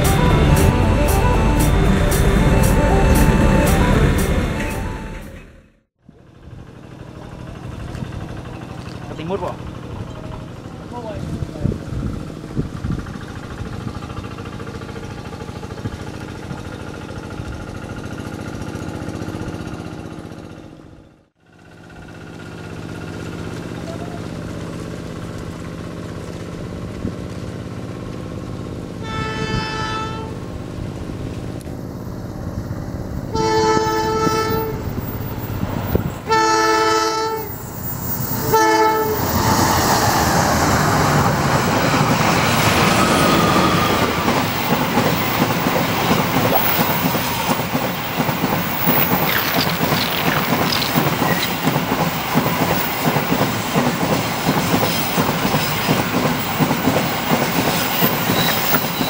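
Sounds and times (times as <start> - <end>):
locomotive horn blasts: 0.0 - 5.6, 29.0 - 30.4, 33.3 - 35.2, 36.2 - 37.6, 38.4 - 39.6
diesel locomotive engine running: 0.0 - 59.0
train wheels clattering on rails: 7.4 - 20.6, 37.5 - 59.0.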